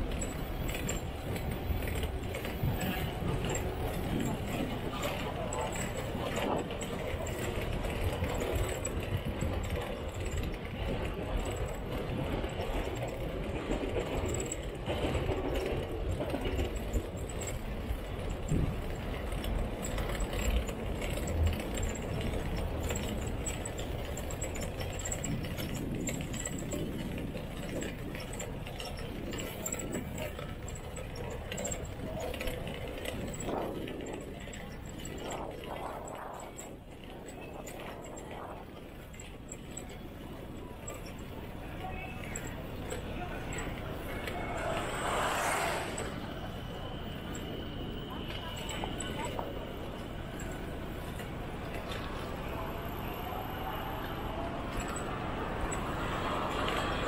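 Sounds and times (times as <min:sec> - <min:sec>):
bicycle freewheel ticking: 0:15.6 - 0:45.5.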